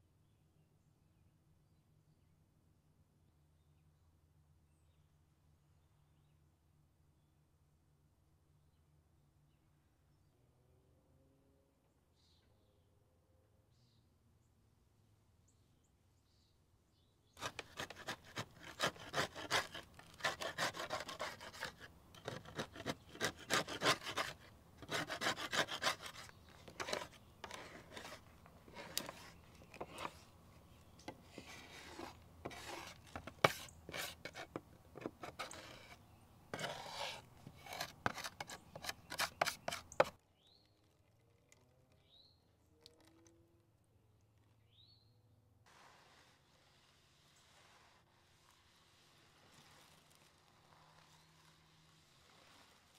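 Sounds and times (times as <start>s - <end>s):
metal scraper scraping metal tray: 17.4s - 30.2s, 31.3s - 40.1s.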